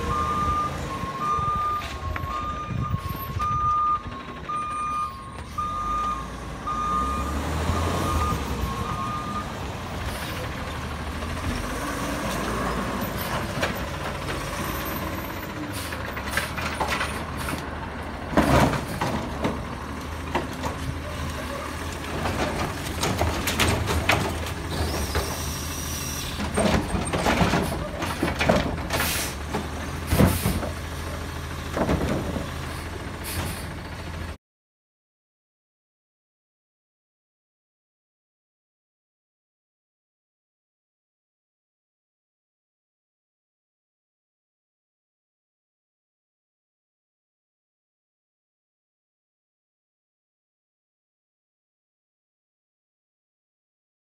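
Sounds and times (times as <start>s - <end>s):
truck backup alarm beeping: 0.0s - 10.4s
diesel engine running: 0.0s - 34.4s.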